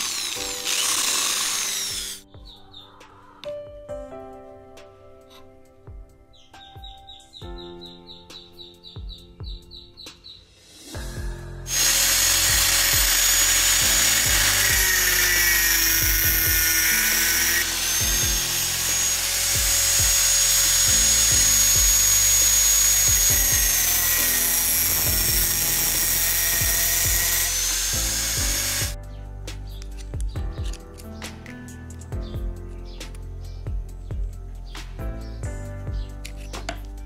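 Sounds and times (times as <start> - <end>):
angle grinder cutting metal: 0.0 - 2.2, 11.7 - 29.0.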